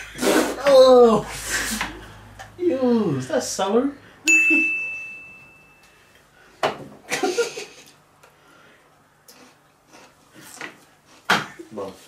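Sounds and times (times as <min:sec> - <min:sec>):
high ringing tone: 0:04.2 - 0:06.1.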